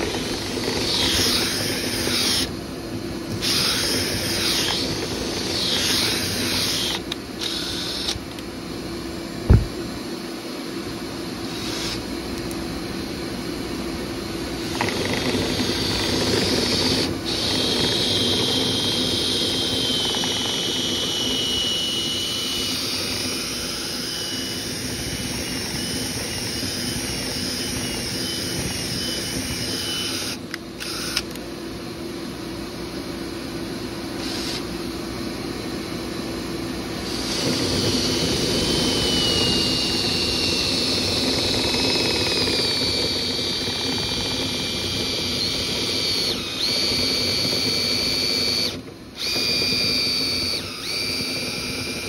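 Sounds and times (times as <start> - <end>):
motor whirring: 0.0 - 2.5, 3.3 - 8.2, 14.6 - 31.4, 37.0 - 52.0.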